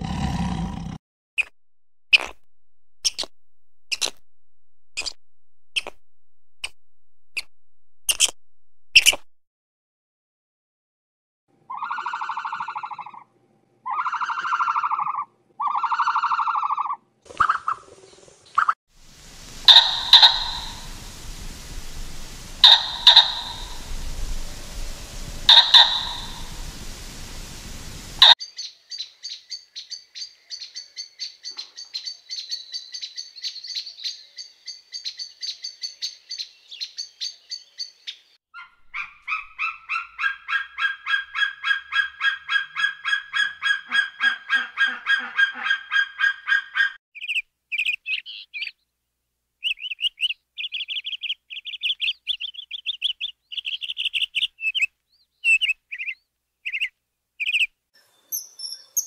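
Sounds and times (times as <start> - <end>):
animal chirping calls: 11.7 - 13.2, 13.9 - 17.8, 19.4 - 26.9, 38.6 - 47.0.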